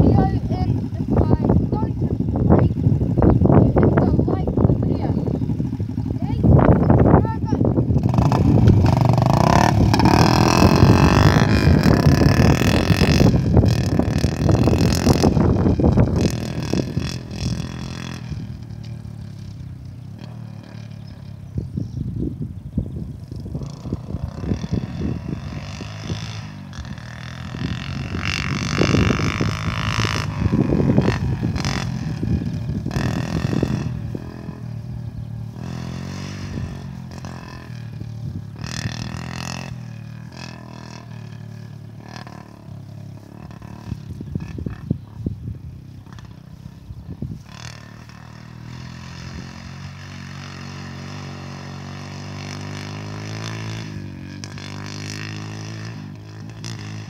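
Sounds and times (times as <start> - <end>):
distant small petrol engine: 0.0 - 57.0
wind noise on microphone: 0.0 - 57.0.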